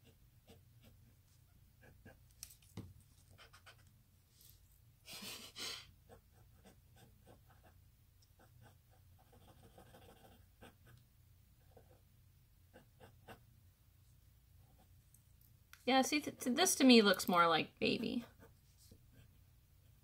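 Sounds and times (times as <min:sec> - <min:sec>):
pencil scratching on paper: 0:00.0 - 0:02.3, 0:03.1 - 0:04.0, 0:06.0 - 0:07.8, 0:08.4 - 0:11.0, 0:11.6 - 0:12.1, 0:12.7 - 0:13.5, 0:17.9 - 0:20.0.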